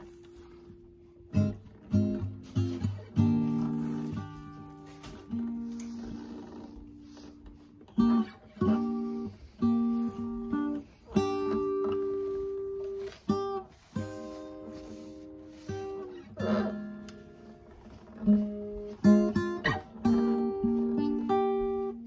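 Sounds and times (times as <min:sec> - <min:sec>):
acoustic guitar strumming: 0:00.0 - 0:22.0.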